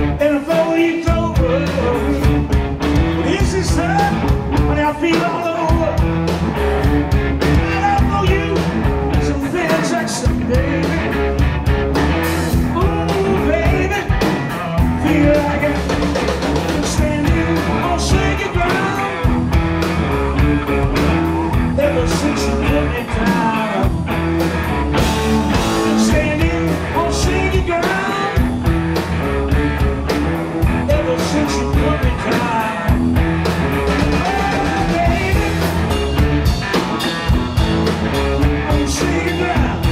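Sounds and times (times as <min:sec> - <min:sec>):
blues-rock band playing: 0:00.0 - 0:39.9
lead vocal singing: 0:07.6 - 0:11.2, 0:12.7 - 0:19.4, 0:21.4 - 0:24.0, 0:25.6 - 0:28.5, 0:30.8 - 0:33.0, 0:33.9 - 0:36.0, 0:38.4 - 0:39.9.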